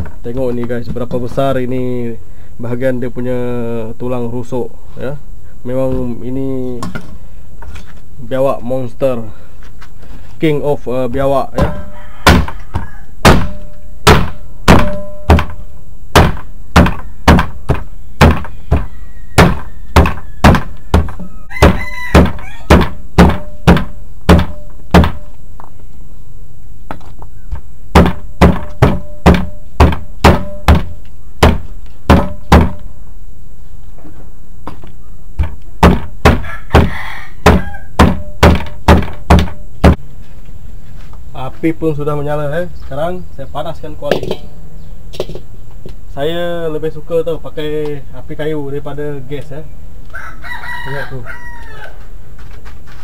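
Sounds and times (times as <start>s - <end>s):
cleaver chopping meat and bones: 11.1s - 15.6s, 16.2s - 25.2s, 28.0s - 32.8s, 35.4s - 40.0s.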